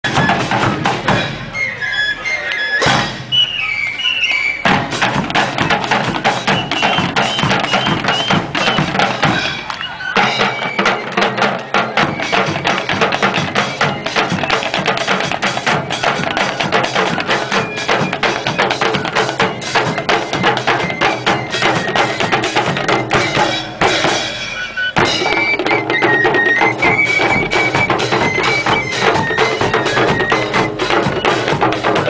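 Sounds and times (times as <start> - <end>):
double-headed drums: 0.0 - 1.7, 2.8 - 32.0
nasal reed-pipe melody: 0.1 - 32.0
bass drum: 4.7 - 10.4.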